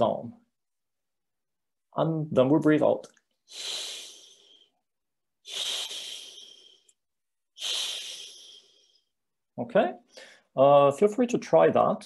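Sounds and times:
man making breathy hiss sound: 3.5s - 4.8s, 5.4s - 6.9s, 7.6s - 9.1s.

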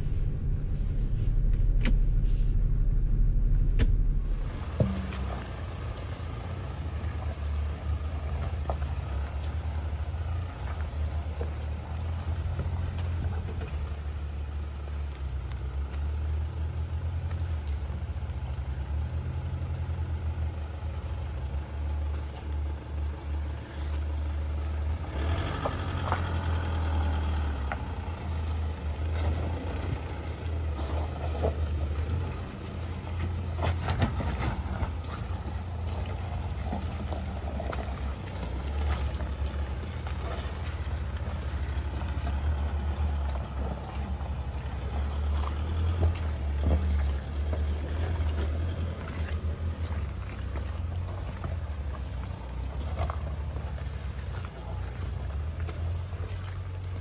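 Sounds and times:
vehicle bumps knocks and rattles: 0.0s - 9.9s, 27.6s - 56.0s
engine low drone: 0.0s - 57.0s.

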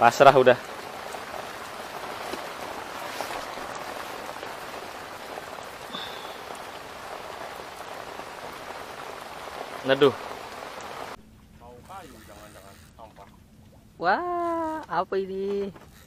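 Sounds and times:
rain on a hut roof: 0.0s - 11.2s
water drip ticks: 0.0s - 11.2s.

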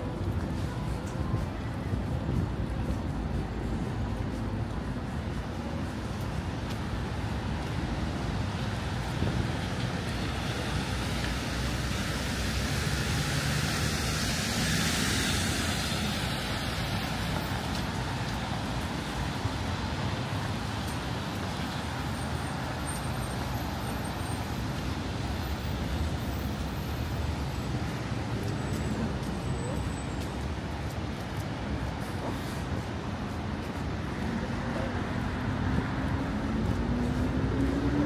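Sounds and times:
rumble of traffic: 0.0s - 38.0s
vehicle passing: 35.0s - 38.0s.

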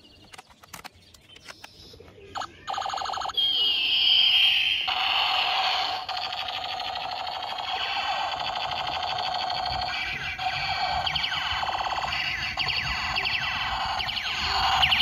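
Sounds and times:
toy gun electronic firing effects: 2.4s - 15.0s
falling siren-like tone: 6.9s - 15.0s.

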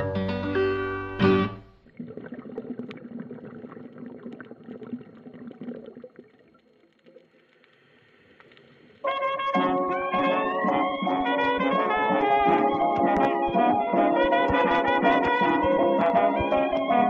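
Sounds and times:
underwater gurgling and bubbling: 1.8s - 7.4s
faint clicks: 6.8s - 9.1s
music with brass: 9.1s - 17.0s.

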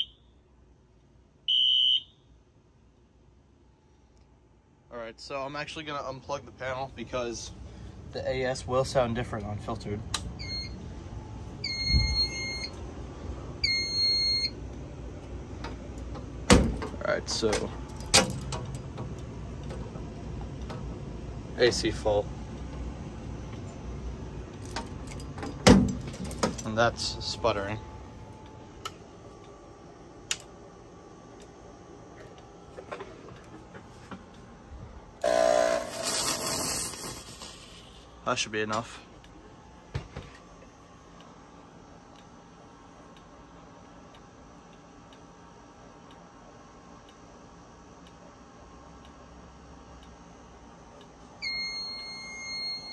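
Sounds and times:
fire alarm horn blasts: 0.0s - 0.4s, 1.5s - 2.3s, 11.6s - 12.8s, 13.6s - 14.6s, 35.2s - 36.1s, 51.4s - 52.9s
fog machine pump buzz: 10.4s - 15.1s, 26.7s - 38.3s, 50.5s - 52.9s
fog jetting hiss: 36.0s - 38.0s.

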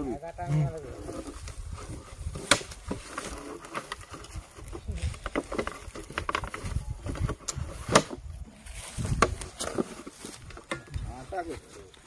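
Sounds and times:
rustling in dry leaves: 0.0s - 12.0s.

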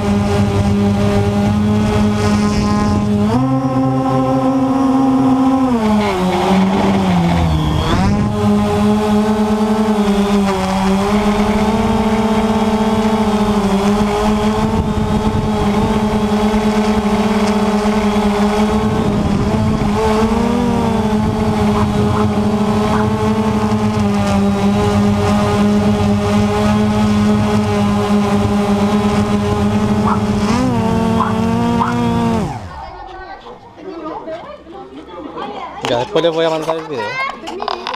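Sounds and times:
quadcopter propellers buzzing: 0.0s - 33.9s.

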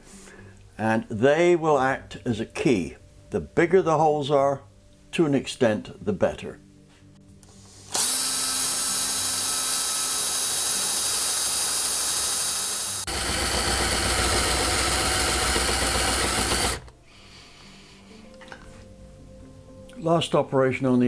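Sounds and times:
electric drill boring into metal: 7.9s - 16.9s.

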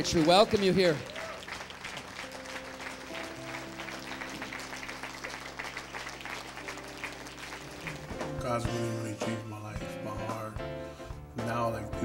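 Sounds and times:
congregation applauding: 0.0s - 8.8s.

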